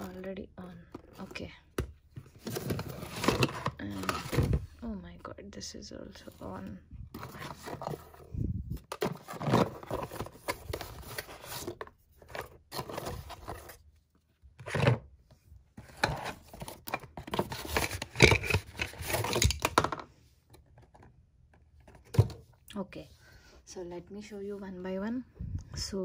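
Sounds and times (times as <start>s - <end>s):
cardboard rustling and scraping: 2.1s - 4.8s, 7.1s - 13.9s.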